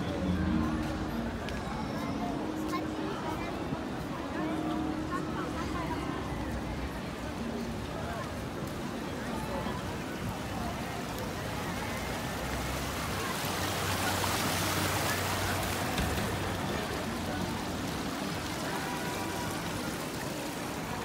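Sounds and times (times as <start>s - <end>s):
faint background music: 0.0s - 12.8s
chatter of many voices: 0.0s - 21.0s
fountain water splashing: 0.0s - 21.0s.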